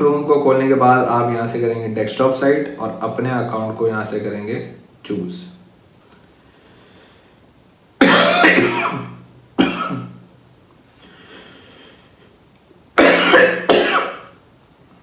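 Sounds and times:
man coughing: 8.0 - 10.2, 13.0 - 14.4.

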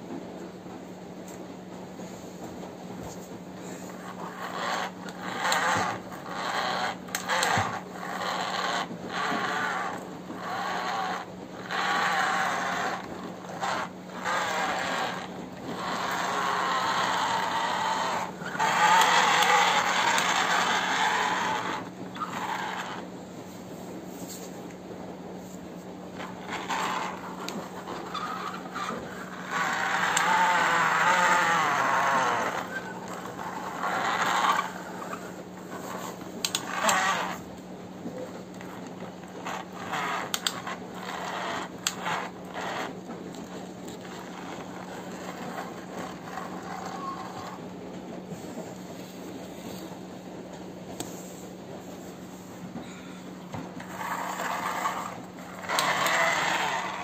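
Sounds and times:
steady low hum: 0.0 - 57.0
toy motor and gears whirring: 3.0 - 23.1, 25.4 - 50.0, 52.8 - 57.0
plastic clicks and scrapes: 3.9 - 23.1, 26.2 - 47.7, 53.5 - 57.0.

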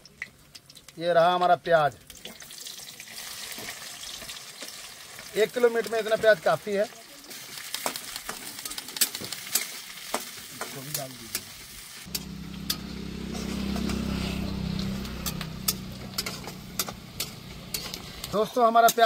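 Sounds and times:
onions sizzling in oil: 0.0 - 19.0
low hum: 12.1 - 18.3
spatula scraping a pan: 13.3 - 19.0.

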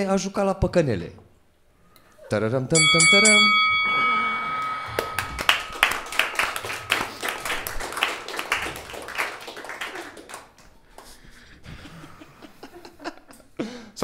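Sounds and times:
crowd clapping: 4.3 - 11.4.

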